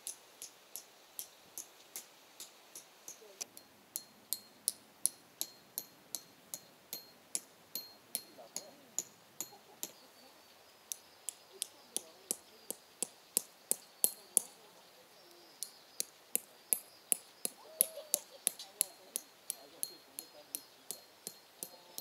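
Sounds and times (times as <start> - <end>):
hammer striking metal pegs: 2.4 - 10.0, 18.5 - 22.0.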